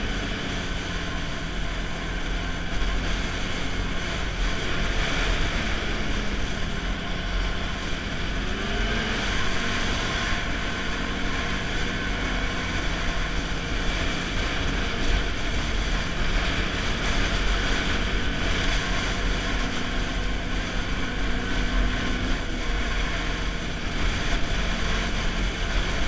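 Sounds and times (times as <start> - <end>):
snowmobile engine running: 0.0 - 26.0.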